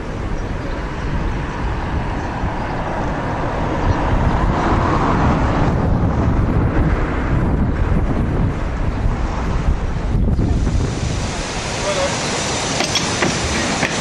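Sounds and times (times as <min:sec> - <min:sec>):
wind rumble on microphone: 0:00.0 - 0:14.0
diesel train approaching: 0:11.1 - 0:14.0.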